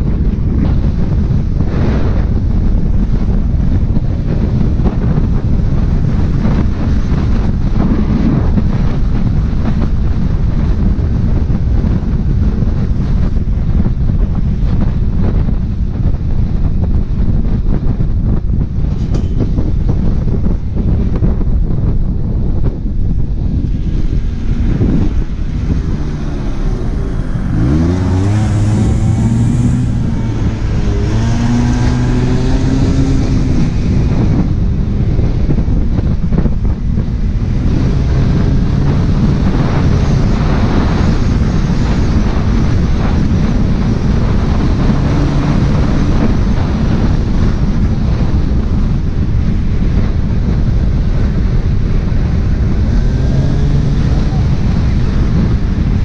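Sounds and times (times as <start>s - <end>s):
wind noise on microphone: 0.0s - 56.0s
scooter engine revving: 23.9s - 34.5s.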